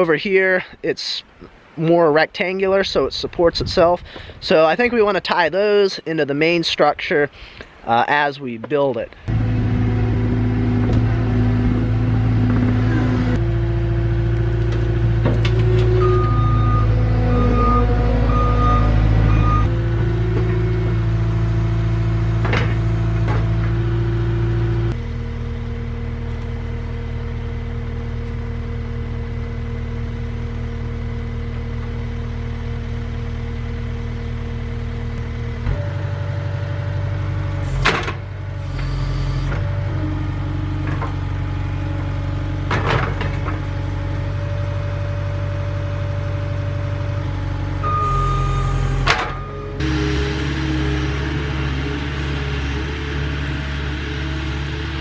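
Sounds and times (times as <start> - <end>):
diesel engine idling: 9.2 - 55.0
reversing beeps: 16.0 - 19.7, 38.7 - 39.5, 47.8 - 49.7.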